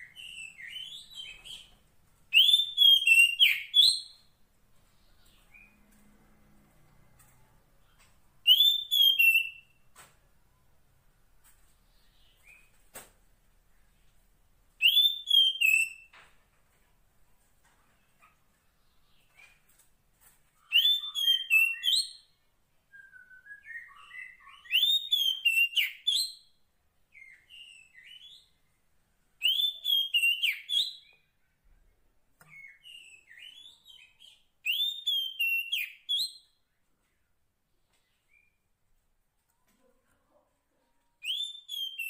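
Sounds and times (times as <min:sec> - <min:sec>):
bird whistled phrases: 0:02.3 - 0:04.2, 0:08.5 - 0:09.7, 0:14.8 - 0:16.1, 0:20.6 - 0:22.2, 0:22.9 - 0:26.3, 0:29.4 - 0:31.1, 0:41.2 - 0:42.0.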